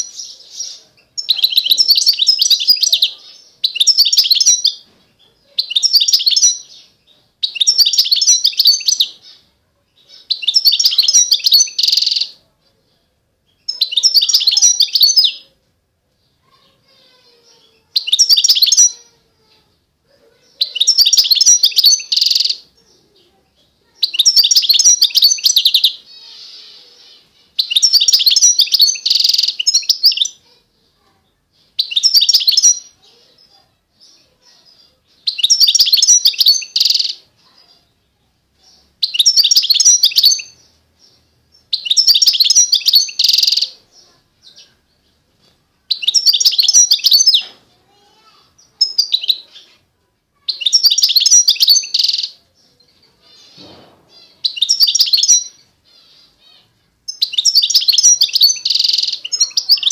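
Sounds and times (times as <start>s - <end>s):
songbird warbling: 0.0s - 4.8s, 5.6s - 9.4s, 10.1s - 12.4s, 20.4s - 22.8s, 23.9s - 30.4s, 35.2s - 37.3s, 38.6s - 44.8s, 45.9s - 47.6s, 50.5s - 52.4s, 53.2s - 59.9s.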